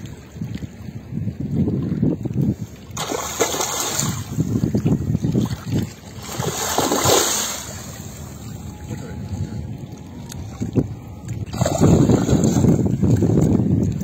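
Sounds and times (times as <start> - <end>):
wind buffeting microphone: 0.0 - 14.0
fish splashing in water: 2.9 - 8.6, 10.2 - 14.0.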